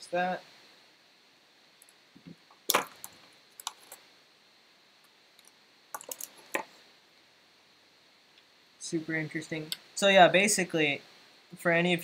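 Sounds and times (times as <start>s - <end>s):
screwdriver and computer parts clinking: 5.4s - 6.4s.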